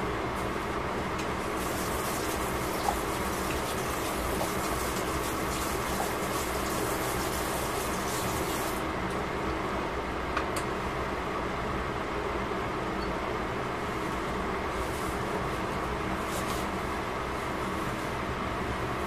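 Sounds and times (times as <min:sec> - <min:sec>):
pot bubbling: 0:01.6 - 0:08.4.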